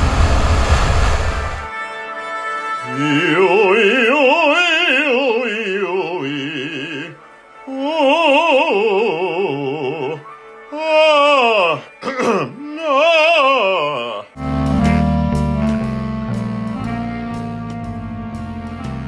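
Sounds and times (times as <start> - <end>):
operatic singing: 2.8 - 14.4
held accompaniment: 14.4 - 19.0.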